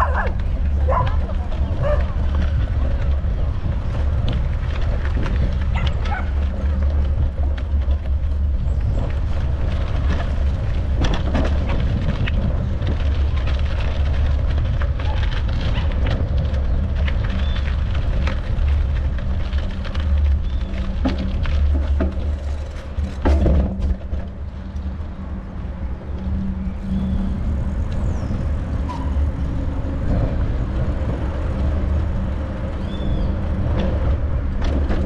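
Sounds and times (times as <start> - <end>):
wind rumble on microphone: 0.0 - 35.0.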